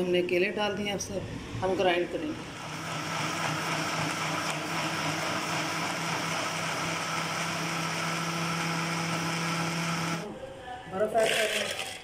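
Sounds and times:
blender motor whirring: 2.4s - 10.3s.

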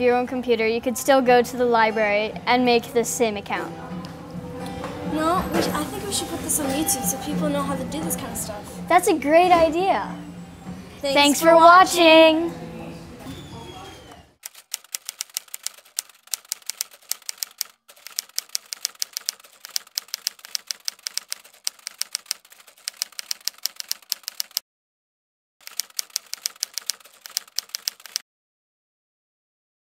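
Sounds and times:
typewriter key clicks: 14.5s - 24.6s, 25.6s - 28.2s.

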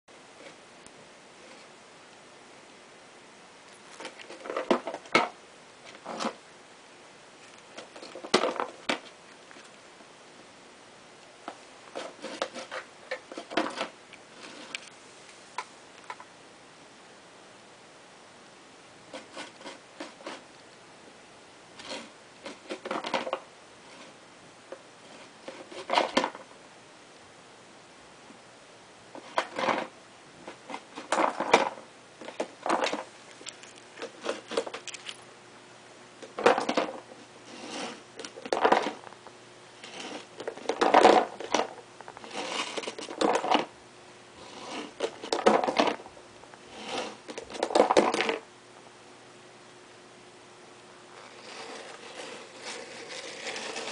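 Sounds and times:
plastic container clattering on tile: 36.2s - 37.0s, 40.4s - 41.8s, 45.0s - 46.0s, 47.0s - 48.4s.

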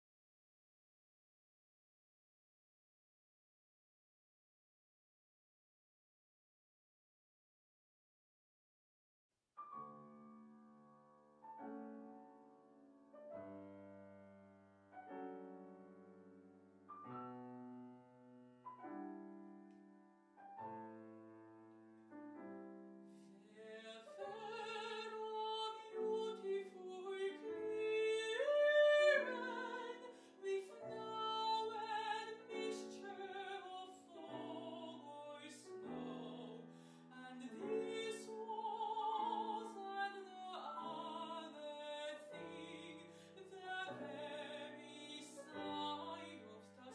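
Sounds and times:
grand piano chords: 9.7s - 23.1s, 24.1s - 46.7s
woman singing classical style: 23.4s - 46.9s.

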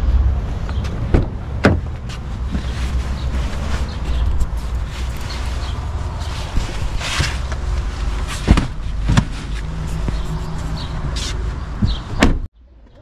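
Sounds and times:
sharp knocks and clunks: 0.7s - 2.7s, 8.3s - 10.3s, 11.8s - 12.5s.

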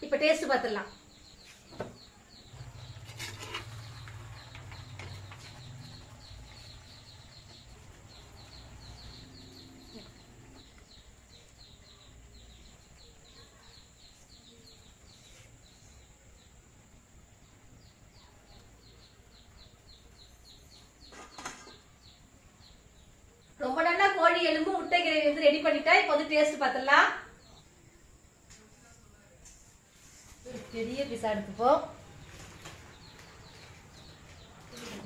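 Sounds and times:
small bird chirping: 0.0s - 26.2s, 29.9s - 35.0s.

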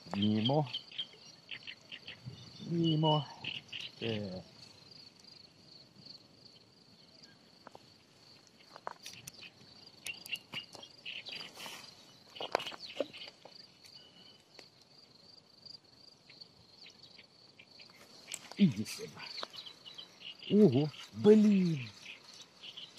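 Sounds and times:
insect chirring: 0.0s - 22.9s
light clicks and rustles: 7.6s - 14.9s, 17.9s - 19.7s.

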